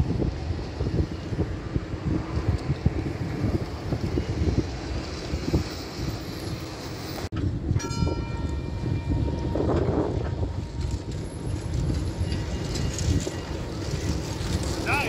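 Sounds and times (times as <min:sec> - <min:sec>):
tram passing rumble: 0:00.0 - 0:15.0
wind buffeting microphone: 0:00.0 - 0:15.0
tram warning gong: 0:03.2 - 0:15.0.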